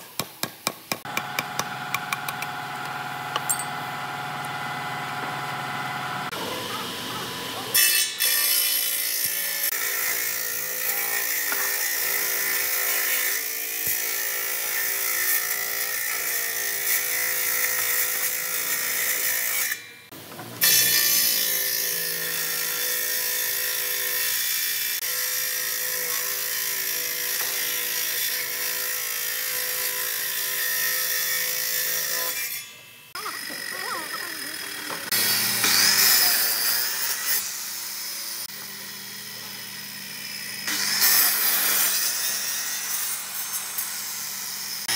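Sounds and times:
table saw ripping wood: 0:20.6 - 0:23.6, 0:25.7 - 0:37.8, 0:40.5 - 0:44.2.

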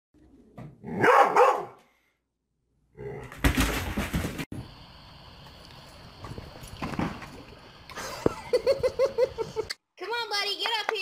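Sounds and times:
dog barking: 0:00.9 - 0:01.8.

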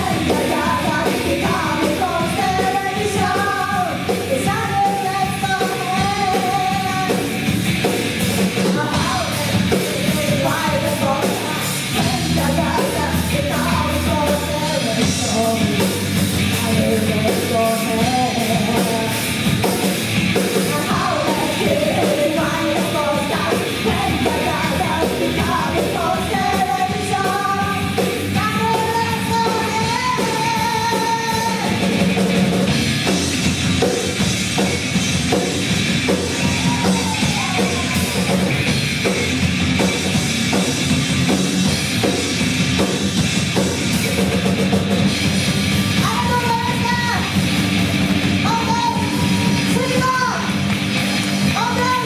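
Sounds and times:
woman singing: 0:00.0 - 0:07.4, 0:08.6 - 0:19.4, 0:20.6 - 0:31.8, 0:46.0 - 0:47.3, 0:48.4 - 0:50.5, 0:51.5 - 0:52.0
rock band playing: 0:00.0 - 0:52.0.

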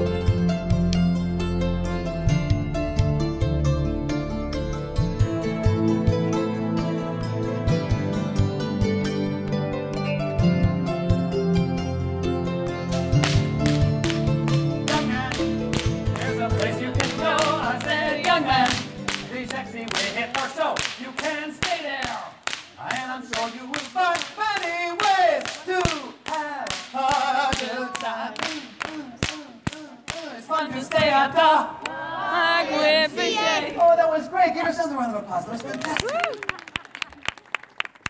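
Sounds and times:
bullwhip cracking: 0:12.9 - 0:30.4
recorded vocal music: 0:13.7 - 0:33.6.

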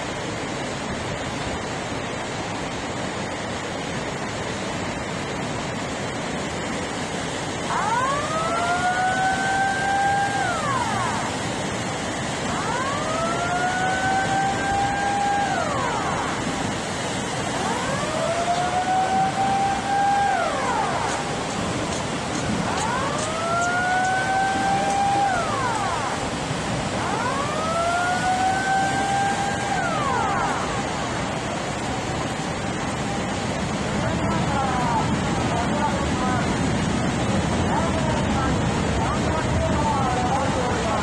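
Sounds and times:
churning water rushing: 0:00.0 - 0:41.0
siren wailing: 0:07.6 - 0:33.4.

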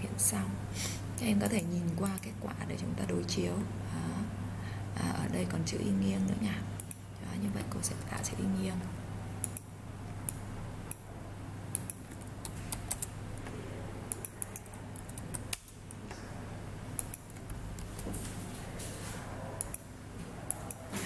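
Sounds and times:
steady low hum: 0:00.0 - 0:21.0
mouse and keyboard clicks: 0:11.7 - 0:13.1, 0:14.1 - 0:16.0.

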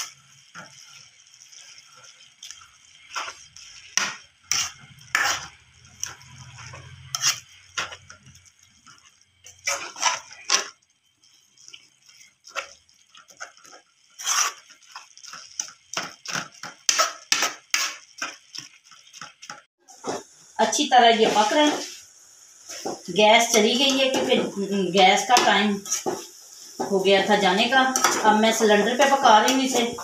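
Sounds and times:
metal spatula scraping a wok: 0:00.0 - 0:10.8, 0:11.7 - 0:20.3, 0:22.7 - 0:30.0.

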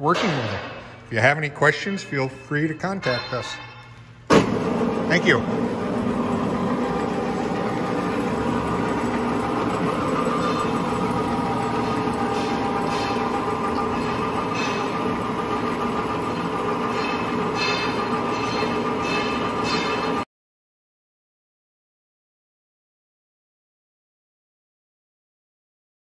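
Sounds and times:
bandsaw motor humming: 0:04.3 - 0:20.2.

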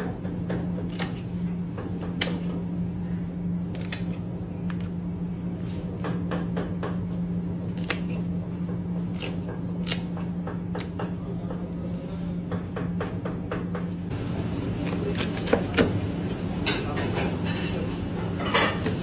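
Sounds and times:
steady low hum: 0:00.0 - 0:19.0
shears snipping fin spines: 0:00.8 - 0:01.2, 0:03.7 - 0:05.0, 0:07.6 - 0:08.3, 0:09.1 - 0:10.1, 0:14.8 - 0:15.9.

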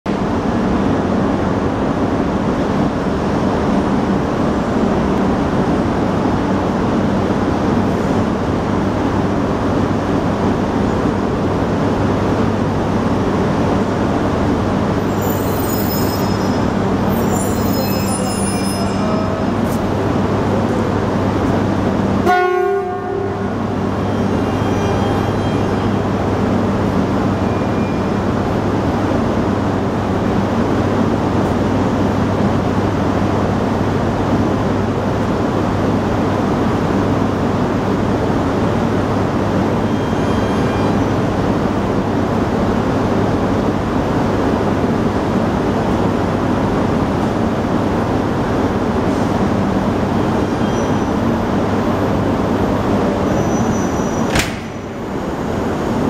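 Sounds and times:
train humming: 0:00.1 - 0:56.0
high-pitched brake squeal: 0:15.0 - 0:19.8, 0:24.0 - 0:26.1, 0:27.4 - 0:28.2, 0:39.8 - 0:41.2, 0:50.2 - 0:51.4, 0:53.2 - 0:54.4.

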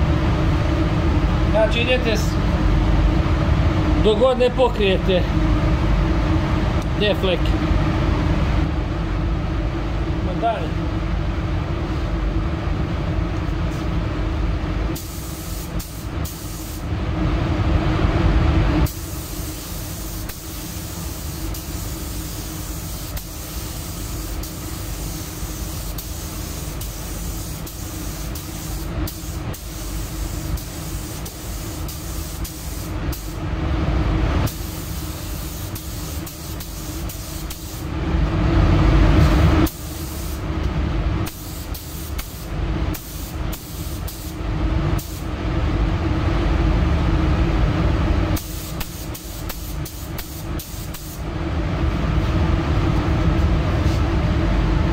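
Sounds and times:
steady low hum: 0:00.0 - 0:54.9
paint spray gun hissing: 0:15.0 - 0:16.8, 0:18.9 - 0:33.4, 0:34.5 - 0:37.8, 0:39.7 - 0:40.4, 0:41.3 - 0:44.4, 0:48.4 - 0:51.2.

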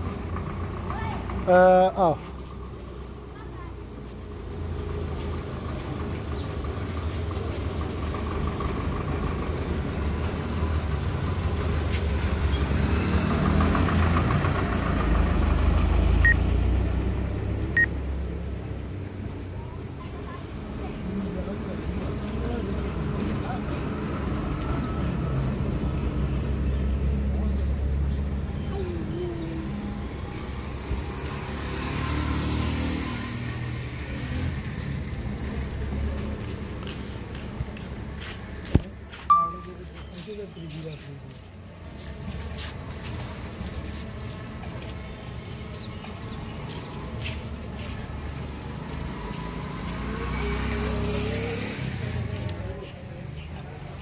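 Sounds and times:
vehicle engine running: 0:00.0 - 0:31.4
road noise: 0:00.0 - 0:54.0
high beep: 0:39.3 - 0:39.8.

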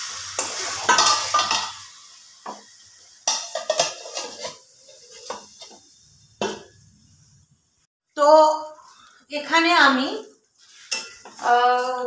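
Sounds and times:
chicken sizzling in a pan: 0:00.0 - 0:07.9, 0:10.6 - 0:12.0
metal lid clinking on pan: 0:00.9 - 0:01.8, 0:03.2 - 0:04.6.

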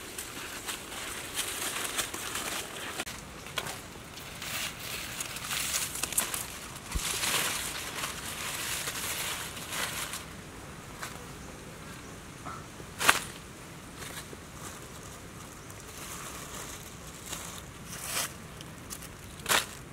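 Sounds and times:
palm fronds rustling: 0:00.0 - 0:19.9.

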